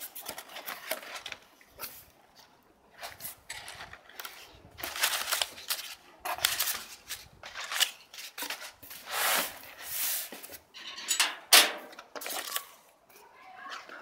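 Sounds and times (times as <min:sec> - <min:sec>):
sharp paper crackle: 0:00.0 - 0:02.0, 0:03.0 - 0:09.6, 0:12.2 - 0:12.9
packing paper crinkling: 0:00.0 - 0:09.9, 0:12.1 - 0:13.0.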